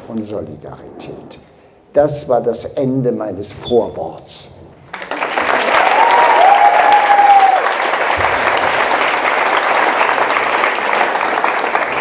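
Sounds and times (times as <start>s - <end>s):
audience applauding: 4.9s - 12.0s
high-pitched cheer: 5.5s - 10.0s.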